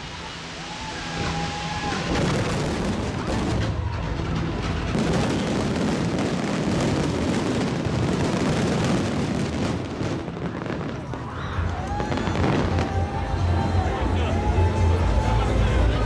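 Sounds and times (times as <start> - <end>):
fireworks crackling bursts: 0.0 - 13.8.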